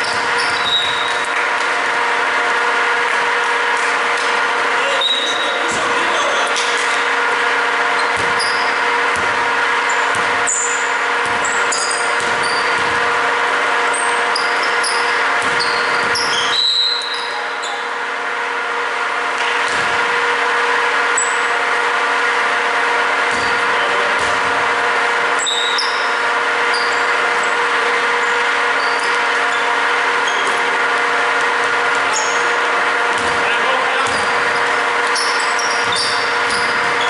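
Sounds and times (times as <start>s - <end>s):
sneakers squeaking: 0.0s - 2.0s, 2.7s - 18.0s, 23.2s - 24.6s, 25.2s - 37.0s
mechanical hum: 0.0s - 37.0s
basketball thumping on court: 8.1s - 10.6s, 11.2s - 13.1s, 15.3s - 16.3s, 19.6s - 20.0s, 23.3s - 24.7s, 33.1s - 34.7s.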